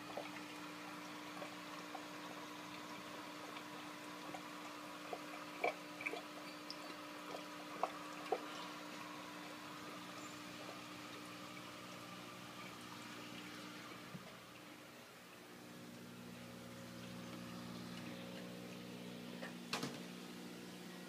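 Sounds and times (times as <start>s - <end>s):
water drips: 0.0s - 20.2s
aquarium filter humming: 0.0s - 21.0s
trickling water: 0.0s - 21.0s.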